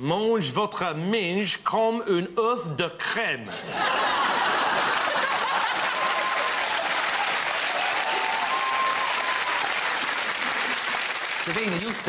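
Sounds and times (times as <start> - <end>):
audience laughing: 3.5 - 7.5
audience applauding: 4.0 - 12.0
voices rising over clapping: 4.7 - 12.0.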